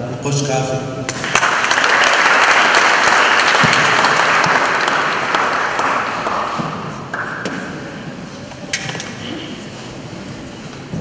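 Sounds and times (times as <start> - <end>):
audience applauding: 1.1 - 7.3.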